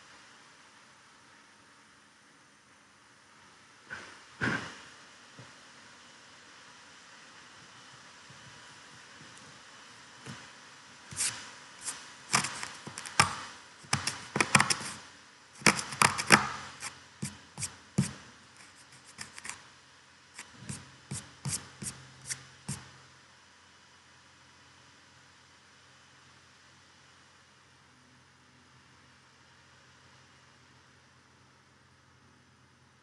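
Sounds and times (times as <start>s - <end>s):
faint steady hiss: 0.0s - 33.0s
sharp clicks and taps: 12.3s - 15.0s, 15.6s - 16.6s.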